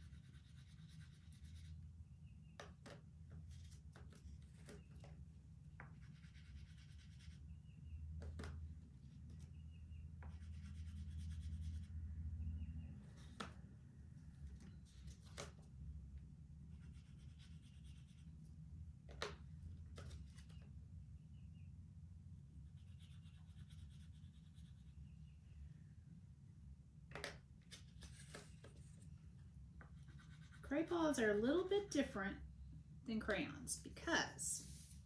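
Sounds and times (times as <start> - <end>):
oil pastel scratching on paper: 0.0 - 1.8, 3.4 - 5.2, 5.8 - 12.0, 16.7 - 18.4, 22.6 - 25.2, 27.7 - 29.1, 29.8 - 32.1.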